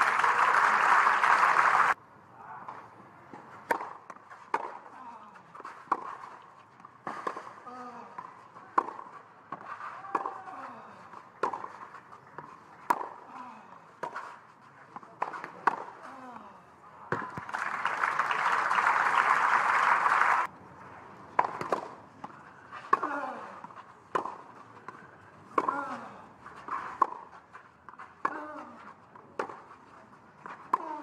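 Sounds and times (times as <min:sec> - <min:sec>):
crowd applause: 0:00.0 - 0:02.0, 0:17.4 - 0:20.5
racquet hitting tennis ball: 0:03.6 - 0:04.8, 0:21.4 - 0:22.0.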